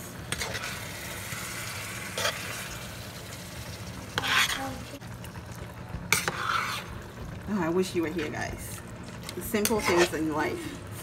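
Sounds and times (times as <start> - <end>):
stew sizzling: 0.0 - 11.0
spoon scraping a steel pan: 0.3 - 0.8, 2.1 - 2.6, 4.2 - 4.8, 6.1 - 6.9, 9.5 - 10.4.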